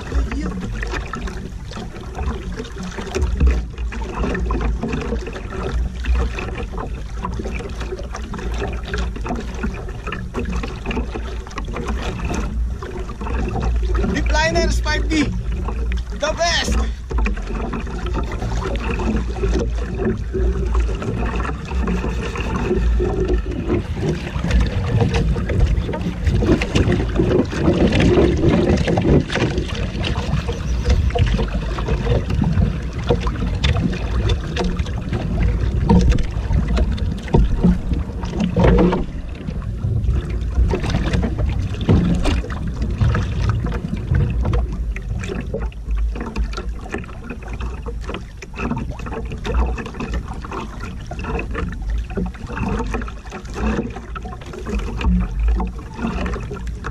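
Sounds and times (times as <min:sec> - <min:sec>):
water slapping boat hull: 0:00.0 - 0:56.9
wind buffeting microphone: 0:13.4 - 0:45.3.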